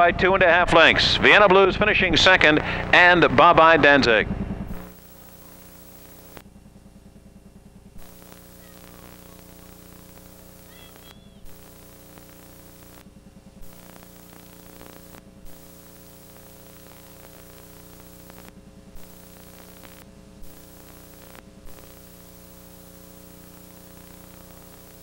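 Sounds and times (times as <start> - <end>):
electrical hum: 0.1 - 25.0
faint hiss: 8.0 - 13.0, 13.6 - 25.0.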